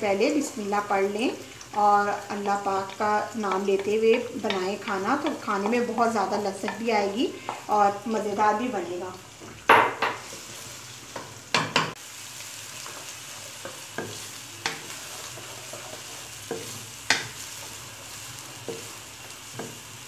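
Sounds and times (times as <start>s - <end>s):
onions sizzling in hot oil: 0.0s - 20.0s
wooden spatula knocking on pan: 3.5s - 5.9s, 9.7s - 10.2s, 11.2s - 12.0s.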